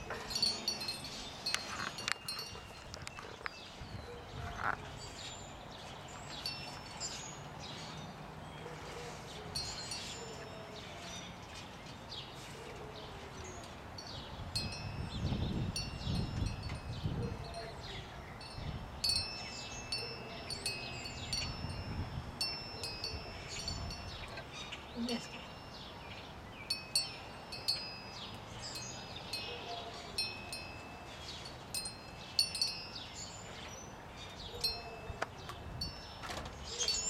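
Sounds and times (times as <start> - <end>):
wind chimes ringing: 0.0 - 5.5, 6.1 - 8.2, 9.5 - 11.4, 14.0 - 37.0.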